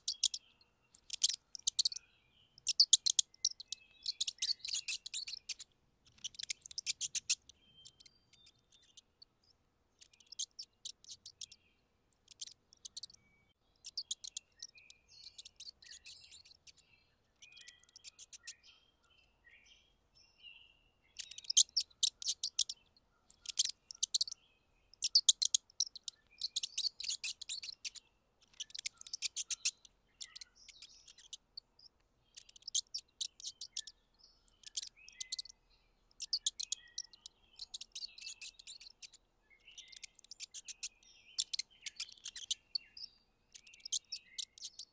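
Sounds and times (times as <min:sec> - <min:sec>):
mouse squeaks: 0:00.0 - 0:13.2, 0:13.8 - 0:18.6, 0:21.1 - 0:44.9.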